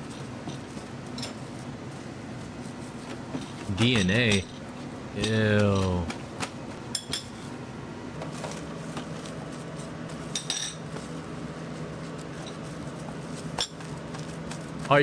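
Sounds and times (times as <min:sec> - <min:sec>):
steady low hum: 0:00.0 - 0:15.0
metal utensils clinking on cookware: 0:10.3 - 0:10.8.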